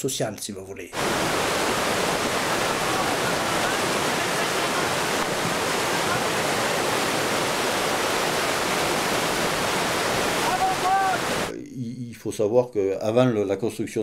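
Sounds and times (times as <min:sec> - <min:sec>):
whitewater rapids rushing: 0:01.0 - 0:11.5.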